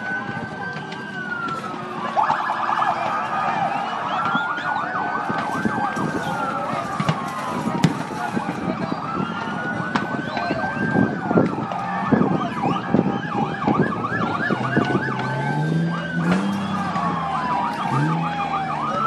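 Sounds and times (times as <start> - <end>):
siren wailing: 0.0 - 19.0
siren yelping: 0.0 - 19.0.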